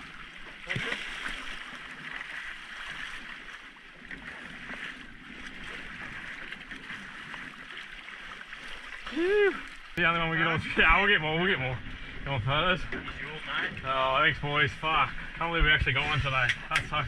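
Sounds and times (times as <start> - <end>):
water sloshing against boat hull: 0.0 - 17.0.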